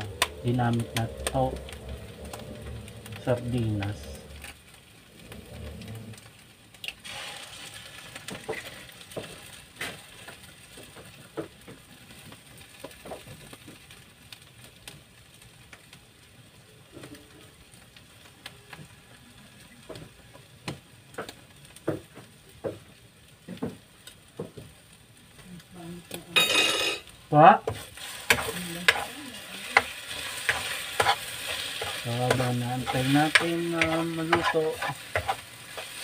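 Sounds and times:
faint frying sizzle: 0.0s - 36.0s
spoon scraping and tapping pan: 26.4s - 29.1s, 29.7s - 36.0s.

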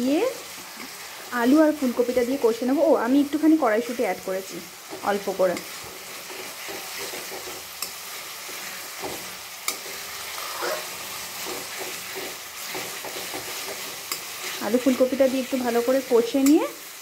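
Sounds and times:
masala sizzling in oil: 0.0s - 17.0s
metal spatula scraping pan: 4.8s - 15.4s
spatula clicking against pan: 12.7s - 14.3s.

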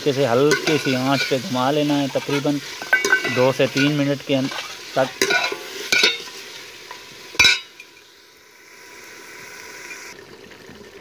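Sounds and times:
metal ladle scraping metal pot: 0.0s - 8.0s
oil sizzling: 0.0s - 11.0s.

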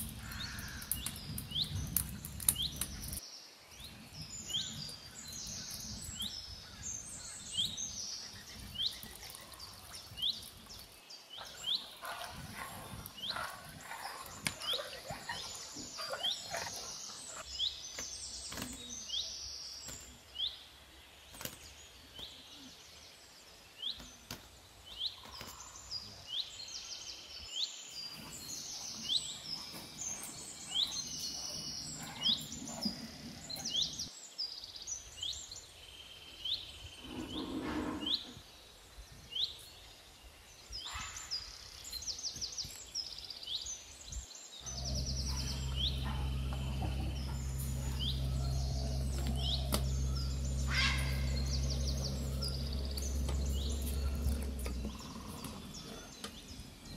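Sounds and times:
small birds chirping: 0.0s - 56.9s
steady low hum: 44.6s - 56.9s.

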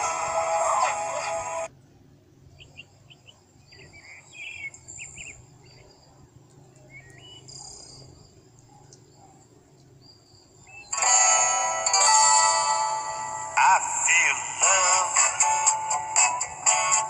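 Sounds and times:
faint bird chirps: 1.8s - 11.1s.

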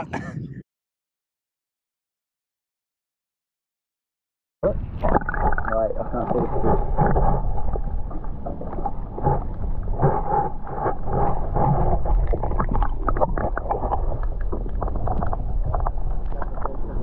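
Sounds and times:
wind rumbling on microphone: 4.6s - 17.0s.

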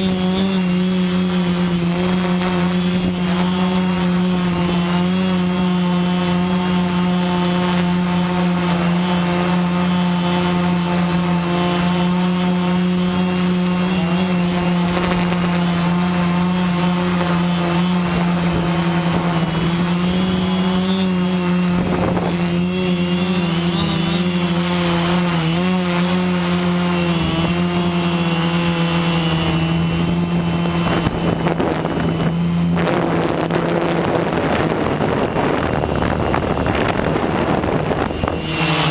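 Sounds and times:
drone motors whining hum: 0.0s - 38.9s.

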